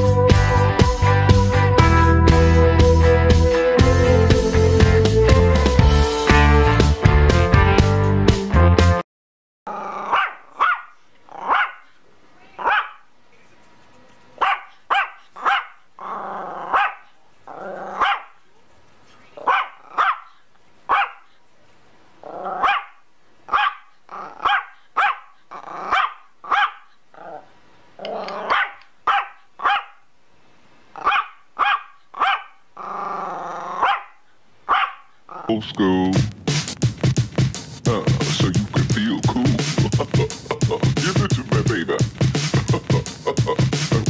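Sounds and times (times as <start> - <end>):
small dog barking: 9.9 - 13.1, 14.4 - 18.4, 19.2 - 21.4, 22.2 - 27.4, 28.0 - 30.0, 31.0 - 32.6, 33.6 - 35.5.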